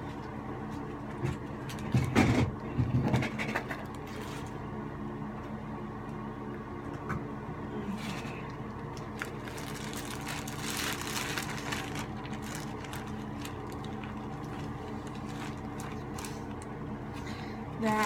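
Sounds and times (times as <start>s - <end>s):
electrical hum: 0.0s - 18.0s
scratching and rustling: 9.1s - 16.6s.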